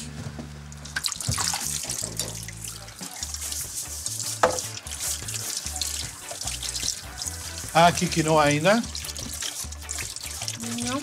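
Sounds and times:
tap running water: 0.8s - 11.0s.

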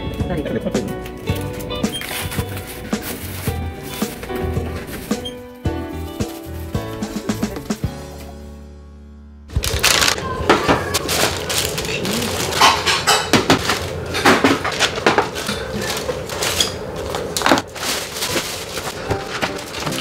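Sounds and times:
plastic bag rustling: 1.0s - 7.8s, 9.5s - 20.0s
items clattering on metal tray: 9.6s - 20.0s.

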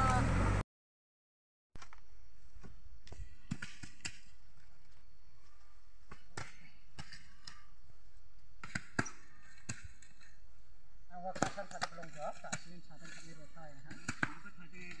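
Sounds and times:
hoes chopping damp earth: 2.6s - 4.4s, 6.0s - 7.7s, 8.6s - 10.4s, 11.2s - 15.0s.

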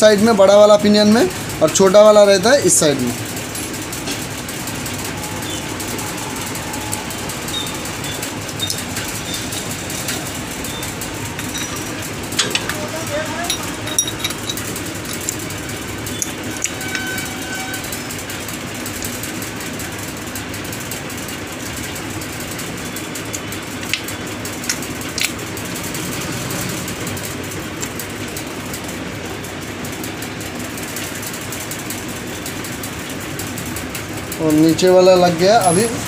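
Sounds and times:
metal gear parts clicking: 8.5s - 18.0s, 23.9s - 25.4s.

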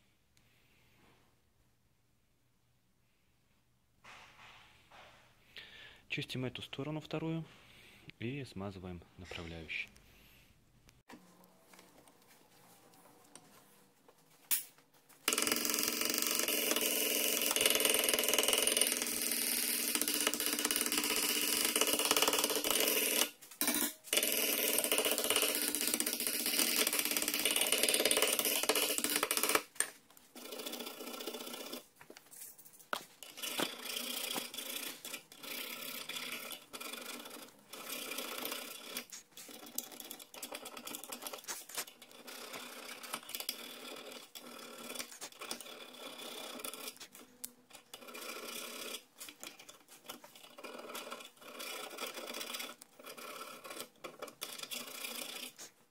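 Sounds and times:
blade scraping rust: 18.6s - 55.8s.

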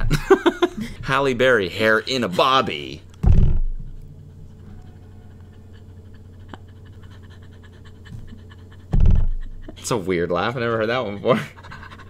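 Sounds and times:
woman laughing: 0.0s - 1.0s, 5.4s - 10.0s, 11.2s - 12.0s
faint steady hum: 0.0s - 12.0s.

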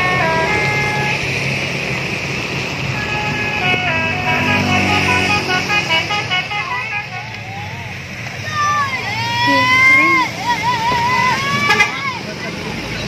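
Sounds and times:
multi-tone bus horn melody: 0.0s - 1.8s, 2.8s - 7.8s, 11.4s - 12.2s
vehicle engine running: 0.0s - 13.0s.

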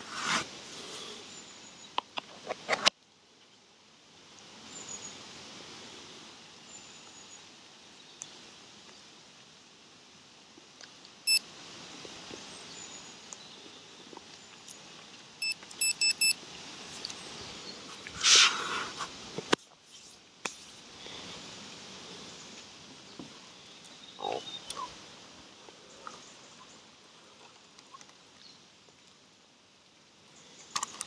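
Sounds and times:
outdoor ambience: 0.0s - 31.0s
short high electronic beeps: 15.4s - 16.4s.

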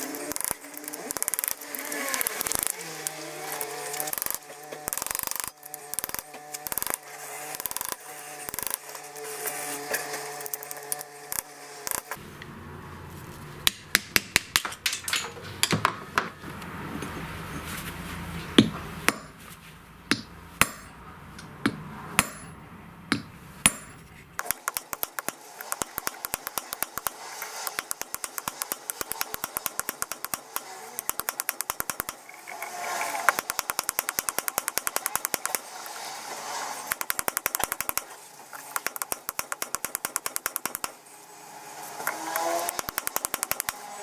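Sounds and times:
hammer striking metal on anvil: 18.6s - 19.4s, 20.1s - 32.2s
light hammer taps: 23.1s - 32.2s.

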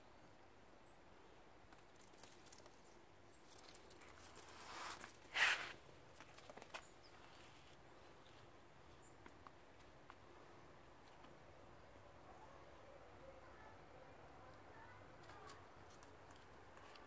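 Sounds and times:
kitten paws pattering on concrete: 1.7s - 10.2s, 15.2s - 17.0s
scrape on concrete: 4.4s - 5.8s.

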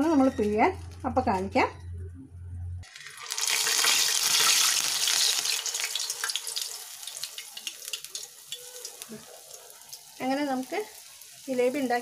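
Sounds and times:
batter sizzling in hot oil: 2.8s - 12.0s.

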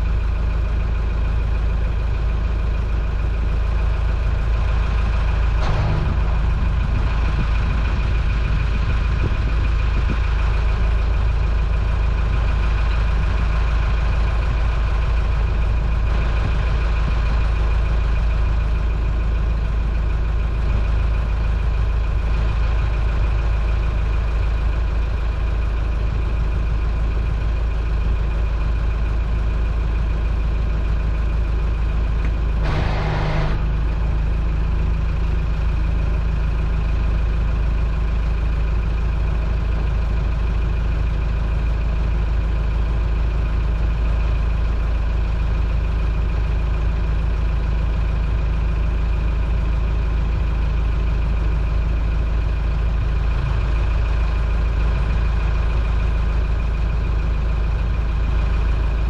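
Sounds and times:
boat engine rumbling: 0.0s - 59.0s
thin steady whine: 32.6s - 33.7s.

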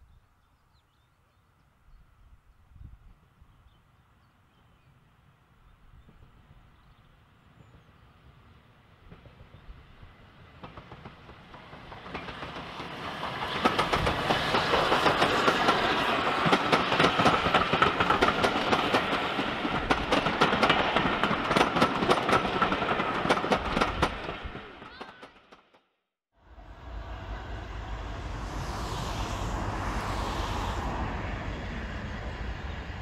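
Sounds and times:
passenger train passing: 3.1s - 25.8s, 26.4s - 33.0s
train wheels clicking on rail joints: 10.6s - 25.8s.

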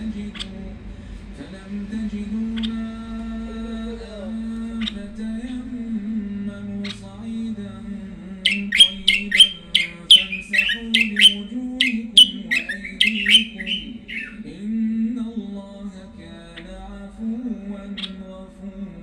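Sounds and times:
songbird singing: 2.4s - 7.6s, 8.2s - 14.8s, 16.4s - 17.0s, 17.7s - 18.4s.

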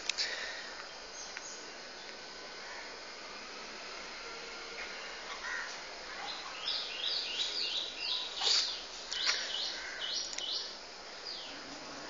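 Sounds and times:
bird chirping: 6.2s - 11.7s.

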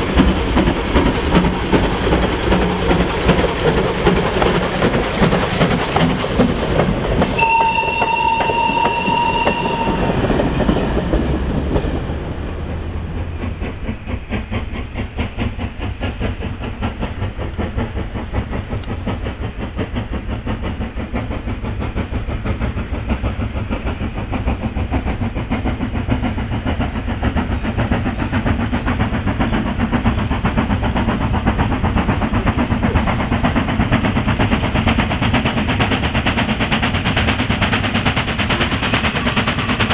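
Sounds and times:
steam locomotive exhaust beats: 0.0s - 39.9s
steam whistle: 7.4s - 11.0s.

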